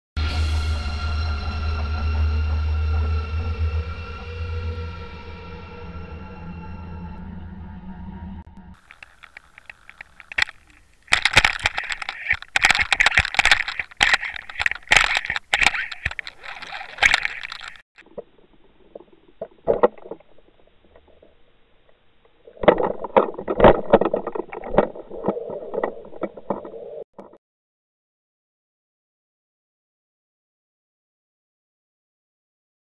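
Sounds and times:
sharp knocks and rattles: 8.8s - 21.3s, 22.6s - 27.4s
water rushing against camera housing: 8.8s - 27.4s.

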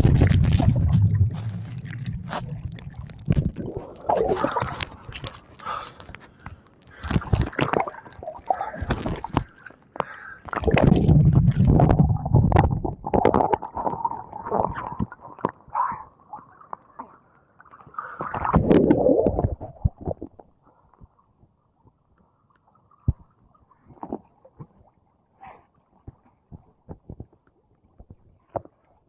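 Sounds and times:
seawater sloshing and splashing: 0.0s - 9.8s.

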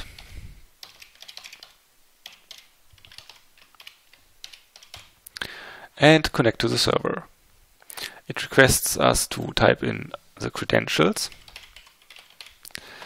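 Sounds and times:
keyboard typing: 0.1s - 5.2s, 11.3s - 12.7s.

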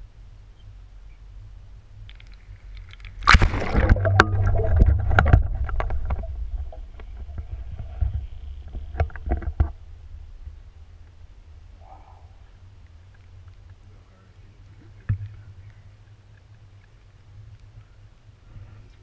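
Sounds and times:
steady low rumble: 0.0s - 19.0s
muffled water sloshing: 2.1s - 13.4s.

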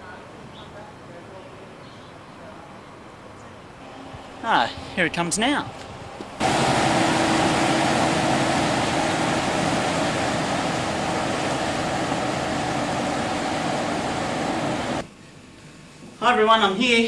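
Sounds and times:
ferry engine drone: 3.8s - 15.1s
churning wake water: 6.4s - 15.0s.

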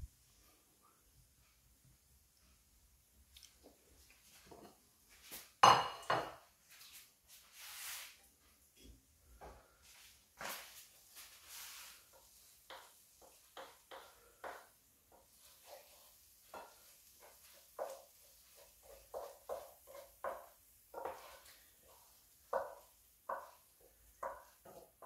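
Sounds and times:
wooden spoon scraping a frying pan: 6.8s - 8.2s, 9.4s - 25.0s.

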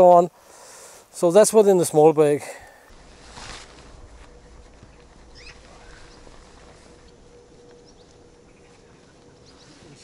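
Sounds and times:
rustle: 0.0s - 10.0s
faint hum and low rumble: 2.9s - 10.0s.

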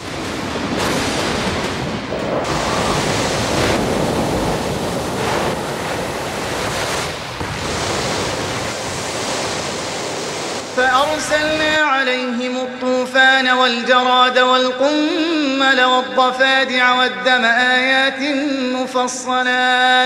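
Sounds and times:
rushing floodwater: 0.0s - 11.9s
wind: 0.0s - 14.2s.

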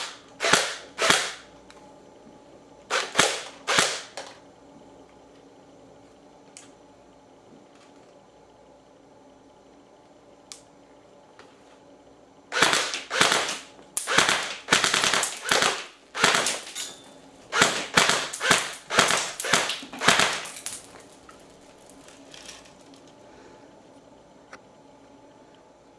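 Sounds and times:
airsoft gun shots: 0.0s - 1.5s, 2.9s - 4.2s, 12.5s - 16.7s, 17.5s - 20.6s.

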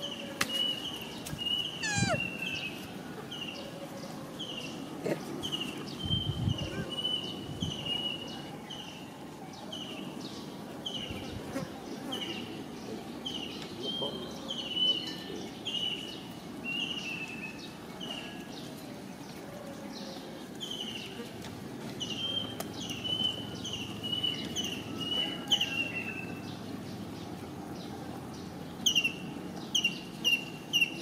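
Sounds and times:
bird calling high note: 1.7s - 2.4s.

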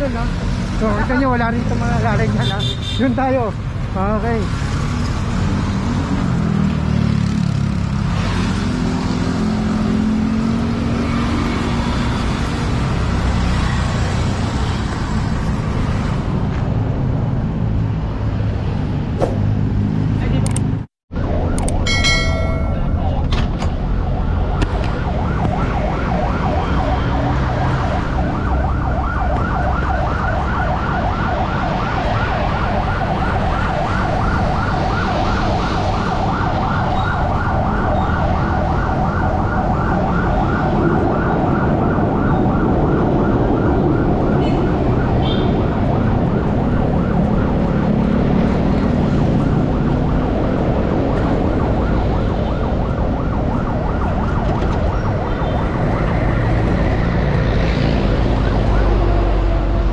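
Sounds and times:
engines and traffic rumble: 0.0s - 59.9s
siren warbling: 21.2s - 59.9s.

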